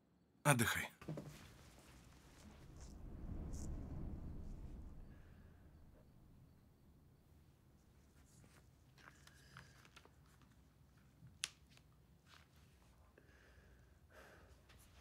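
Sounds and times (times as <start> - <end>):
faint rustles and handling noises: 7.7 - 13.2.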